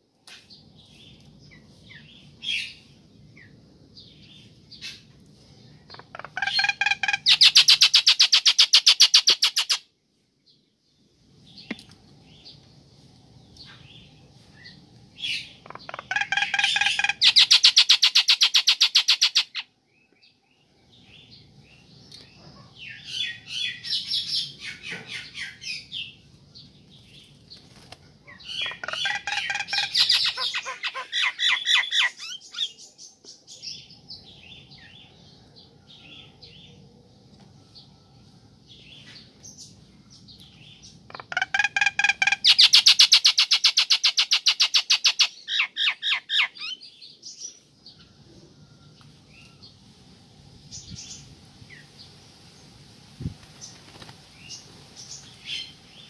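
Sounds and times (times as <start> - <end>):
myna chirps and squawks: 5.9 - 9.8, 15.2 - 19.6, 28.3 - 32.8, 41.1 - 46.8
myna rattling call: 5.9 - 9.8, 15.2 - 19.6, 28.3 - 32.7, 41.1 - 46.8.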